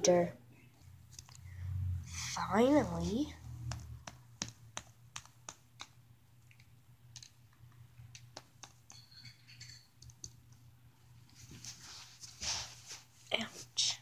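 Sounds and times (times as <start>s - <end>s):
plastic toys clicking on carpet: 3.6s - 9.1s.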